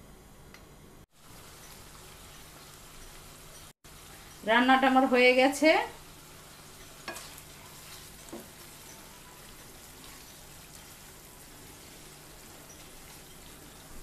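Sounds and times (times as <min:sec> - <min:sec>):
food sizzling in a pan: 0:01.1 - 0:14.0
spatula stirring: 0:06.0 - 0:14.0.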